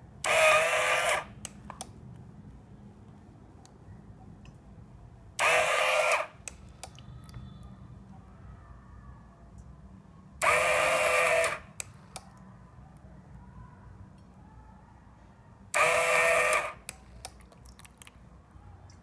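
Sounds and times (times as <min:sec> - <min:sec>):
water pump buzzing whine: 0:00.2 - 0:01.4, 0:05.4 - 0:06.4, 0:10.4 - 0:11.8, 0:15.7 - 0:16.9.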